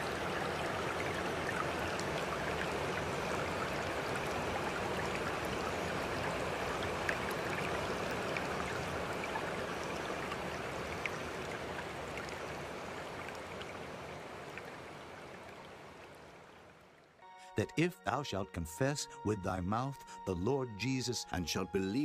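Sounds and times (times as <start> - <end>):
running water: 0.0 - 17.2
water drips: 0.0 - 17.2.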